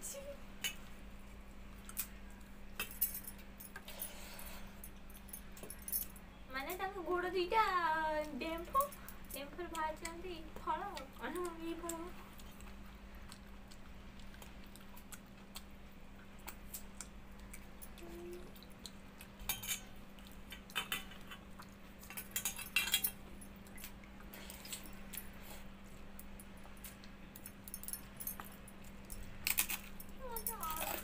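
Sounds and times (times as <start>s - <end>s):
faint steady hum: 0.0s - 31.0s
bangles clinking on steel bowl: 8.6s - 10.0s, 19.4s - 20.0s, 22.1s - 23.2s.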